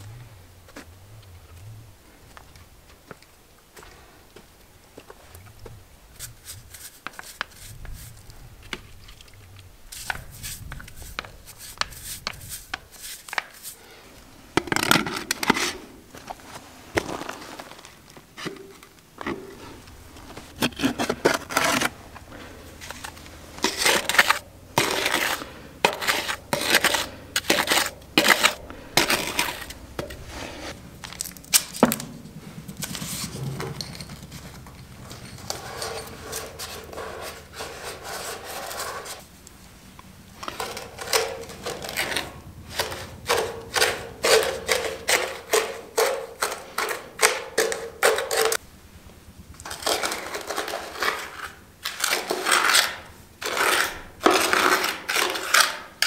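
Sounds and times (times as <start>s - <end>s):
plastic pipe scraping on concrete: 18.4s - 30.8s, 32.8s - 39.2s, 40.4s - 48.6s, 49.6s - 56.0s.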